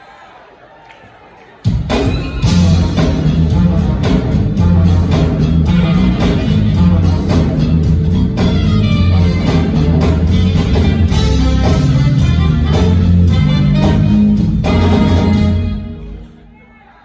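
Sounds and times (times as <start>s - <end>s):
keyboards: 0.8s - 16.8s
drums steady beat: 1.6s - 16.3s
electric bass line: 2.4s - 15.9s
saxophone: 2.4s - 16.4s.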